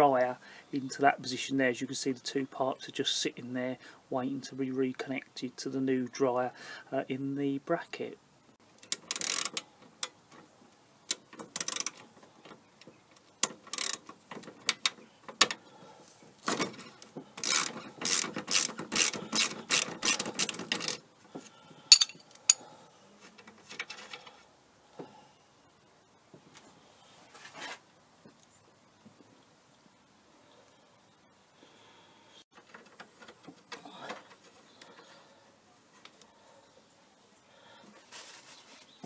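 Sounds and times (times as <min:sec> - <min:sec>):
socket ratchet clicking: 0:08.8 - 0:09.6.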